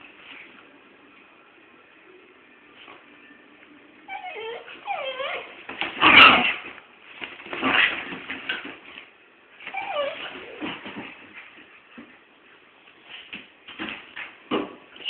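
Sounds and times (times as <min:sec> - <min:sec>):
dogs whining and yelping: 0:04.1 - 0:06.6, 0:09.6 - 0:10.9.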